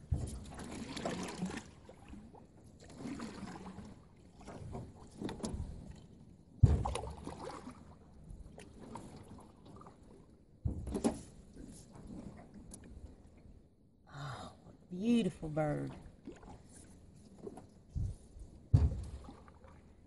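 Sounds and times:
paddle strokes splashing in water: 0.0s - 13.4s, 15.8s - 20.0s.

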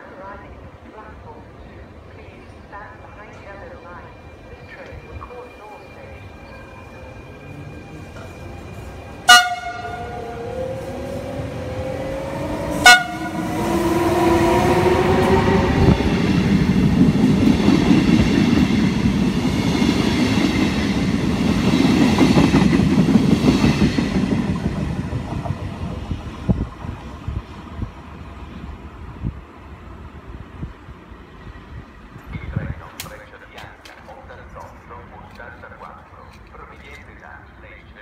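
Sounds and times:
train coaches rumbling and clattering: 0.0s - 38.0s
train horn toots: 9.2s - 10.4s, 12.4s - 14.6s.

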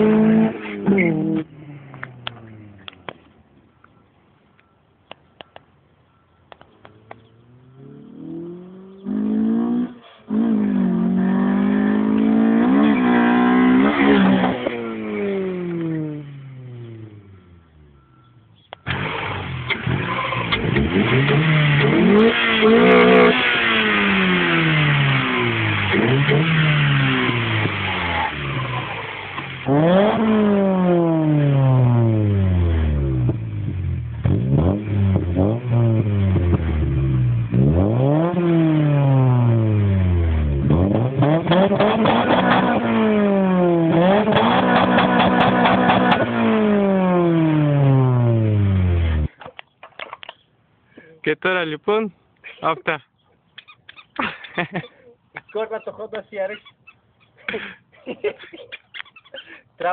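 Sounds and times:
car engine revving: 0.0s - 3.1s, 6.8s - 18.1s, 18.8s - 49.4s.

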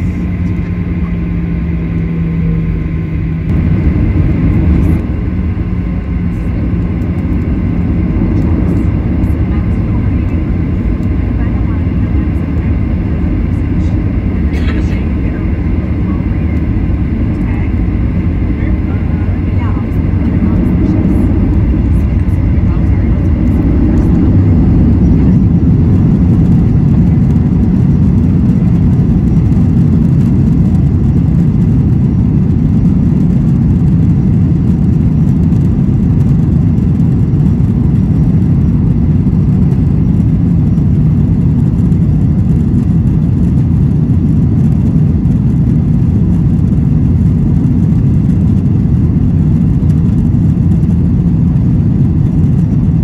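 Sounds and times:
airplane cabin rumble: 0.0s - 53.0s.

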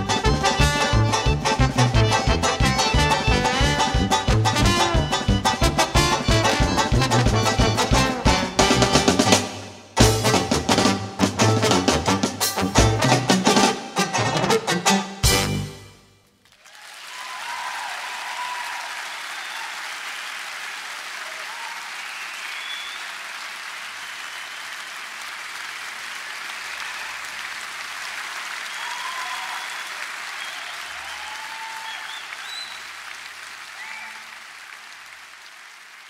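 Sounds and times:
polka band: 0.0s - 16.1s
audience applauding: 16.4s - 36.0s.

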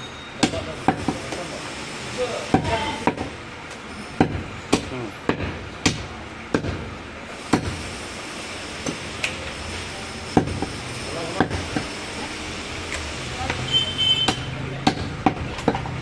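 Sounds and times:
cleaver chopping meat and bone: 0.4s - 1.5s, 2.5s - 3.4s, 4.2s - 6.9s, 7.5s - 7.8s, 10.4s - 10.7s, 11.3s - 11.9s, 14.2s - 16.0s.

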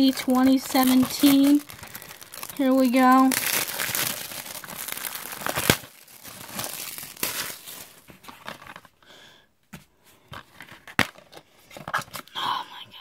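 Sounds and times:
plastic shrink wrap crinkling: 0.0s - 9.0s.

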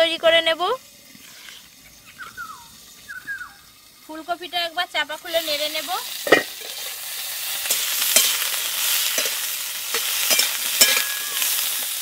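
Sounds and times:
vegetables sizzling in oil: 0.0s - 12.0s
metal spatula scraping a wok: 6.1s - 11.8s.

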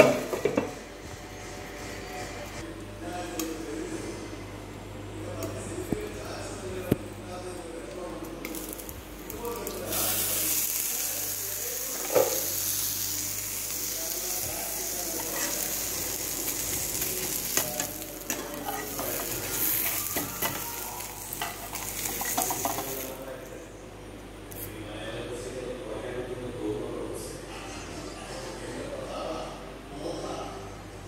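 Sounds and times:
crepe sizzling in a pan: 9.6s - 23.2s.

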